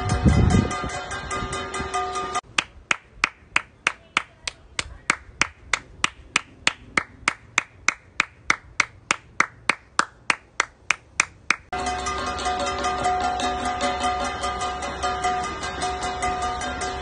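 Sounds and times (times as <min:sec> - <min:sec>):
person clapping hands: 0:02.5 - 0:11.7.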